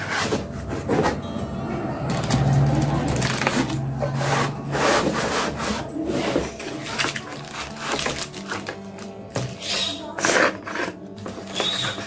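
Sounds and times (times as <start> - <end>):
cardboard scraping against foam: 0.0 - 1.2, 3.5 - 8.7, 9.4 - 12.0
plastic bags crinkling: 2.1 - 4.0, 6.4 - 9.6.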